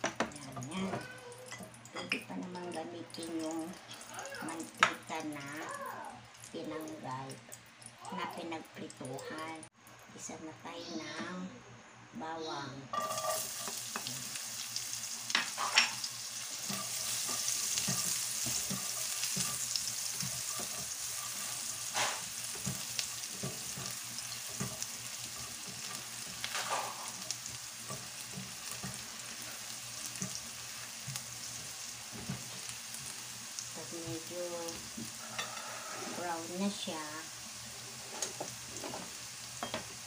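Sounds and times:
garlic sizzling in oil: 0.0s - 9.6s, 12.9s - 40.0s
spatula scraping pan: 12.9s - 14.4s, 15.3s - 33.1s, 35.0s - 36.8s, 37.8s - 39.2s.

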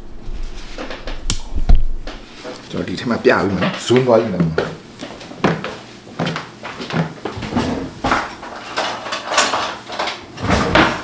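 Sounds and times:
utensils and drawers rattling: 6.6s - 11.0s.

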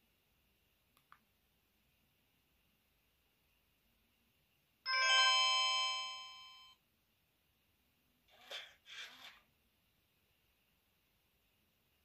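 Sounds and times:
phone chime ringtone: 4.9s - 6.8s.

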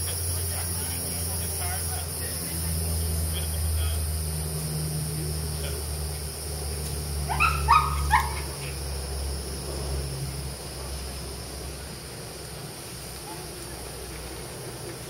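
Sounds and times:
low steady hum: 0.0s - 15.0s
dog yipping: 7.2s - 8.8s.

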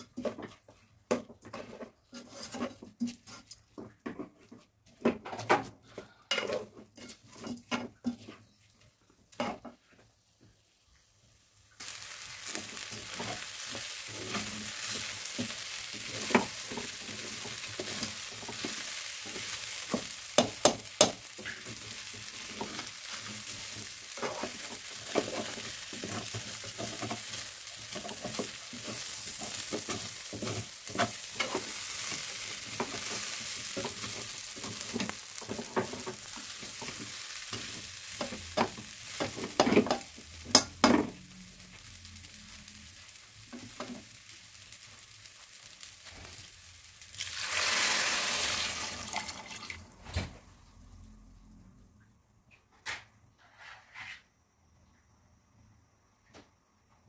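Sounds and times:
spoon scraping and knocking pot: 0.0s - 5.7s, 12.9s - 21.6s, 22.4s - 41.2s
food sizzling in a pot: 6.3s - 50.1s.

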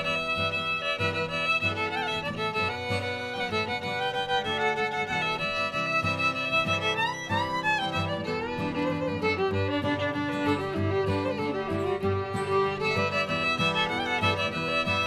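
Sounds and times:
fiddle music: 0.0s - 15.0s.

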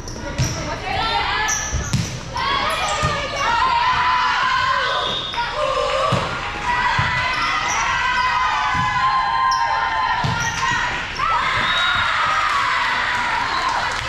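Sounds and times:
volleyball thumps: 1.7s - 4.1s, 6.0s - 7.3s, 8.6s - 9.2s, 10.2s - 10.9s.

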